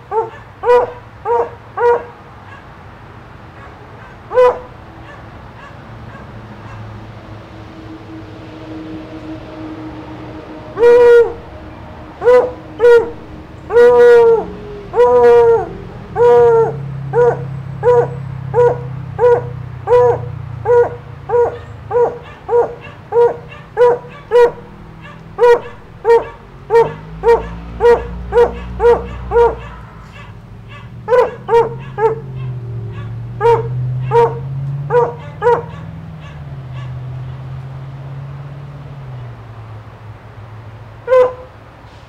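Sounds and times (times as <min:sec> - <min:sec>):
dog barking: 0:00.0 - 0:02.8, 0:03.5 - 0:07.0, 0:12.2 - 0:13.1, 0:13.7 - 0:37.1, 0:41.1 - 0:41.5.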